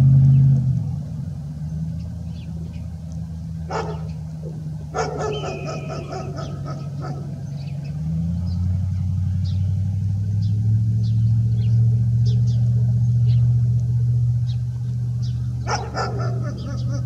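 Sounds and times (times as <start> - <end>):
low engine hum: 0.0 - 17.0
rapid pitched calls: 3.7 - 8.1, 14.5 - 17.0.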